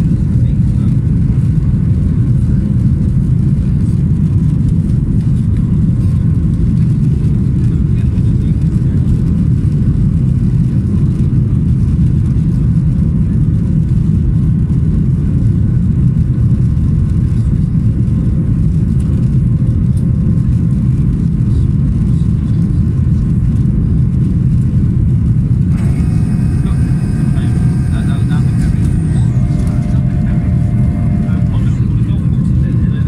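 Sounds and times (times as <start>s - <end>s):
jet engines rumbling: 24.1s - 33.0s
faint higher tones: 25.7s - 32.3s.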